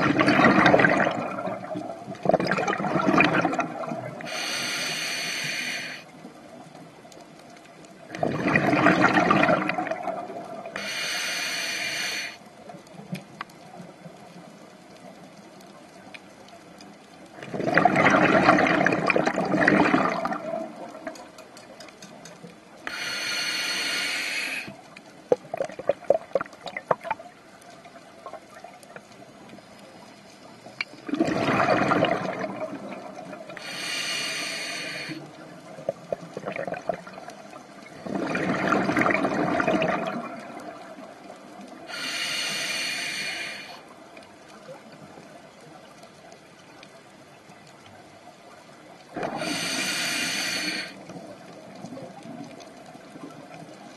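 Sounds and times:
bubbling regulator exhale: 0.0s - 6.0s, 8.1s - 12.4s, 17.4s - 21.2s, 31.0s - 35.3s, 35.9s - 41.2s, 49.1s - 51.3s
crackling bubbles: 0.0s - 53.9s
hissing inhalation: 4.2s - 6.1s, 10.8s - 12.4s, 22.8s - 24.8s, 33.6s - 35.3s, 41.9s - 43.8s, 49.2s - 51.0s.

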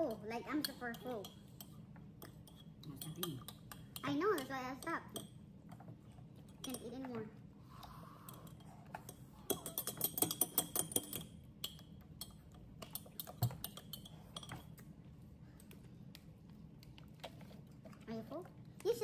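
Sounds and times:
utensils and dishes clattering: 8.3s - 14.8s.

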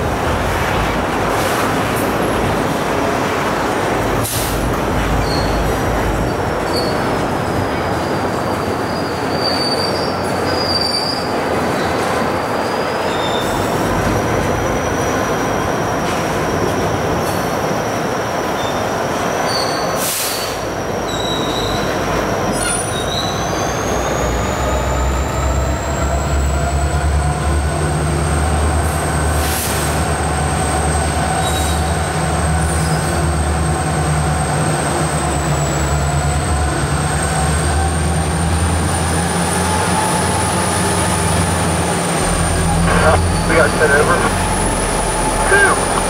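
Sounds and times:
train wheel squeal: 4.2s - 41.9s
low diesel rumble: 38.1s - 46.0s.

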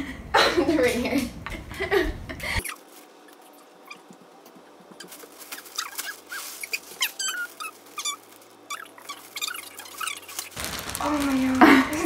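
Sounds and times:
plastic bag crinkling: 4.9s - 12.0s
short high squeaks: 5.6s - 10.6s.

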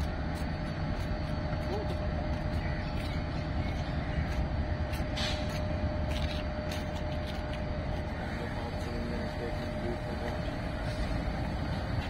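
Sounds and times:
locomotive engine rumbling: 0.0s - 12.0s
thin steady whine: 0.0s - 12.0s.

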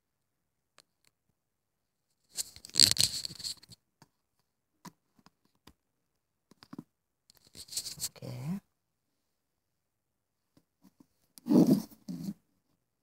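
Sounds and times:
cable scraping and rustling: 2.4s - 3.8s.

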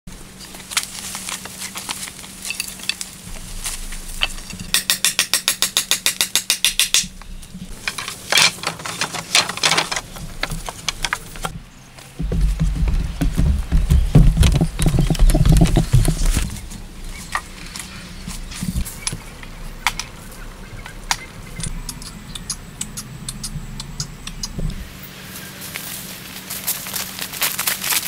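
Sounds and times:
wooden knocks and scrapes: 7.7s - 19.2s
fast run of clicks: 12.2s - 16.6s.

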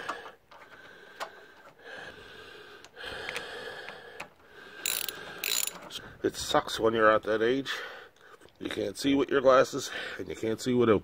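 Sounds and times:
person breathing: 0.0s - 6.2s, 7.7s - 8.5s.

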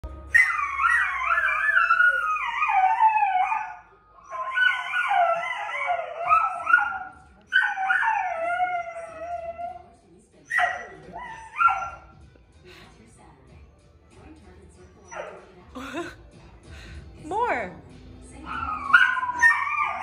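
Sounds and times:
dog howling: 0.4s - 9.9s, 18.5s - 20.0s.

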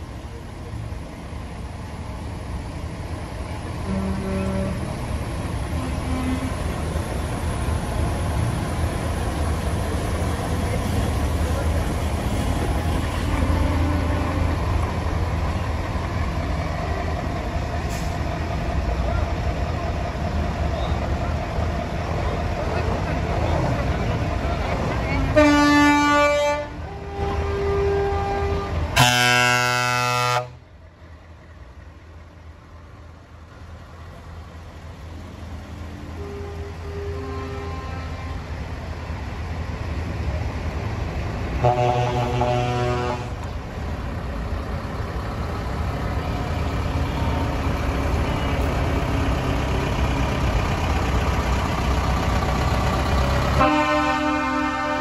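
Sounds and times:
diesel truck engines idling: 0.0s - 55.0s
horn blast: 25.4s - 30.6s, 41.6s - 43.4s, 53.6s - 55.0s
diesel truck engine idling: 28.9s - 55.0s.

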